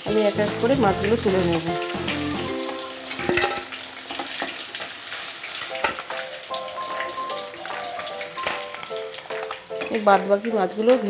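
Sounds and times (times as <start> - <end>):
fish sizzling in hot oil: 0.0 - 11.0
spatula knocking and scraping pan: 3.2 - 4.9.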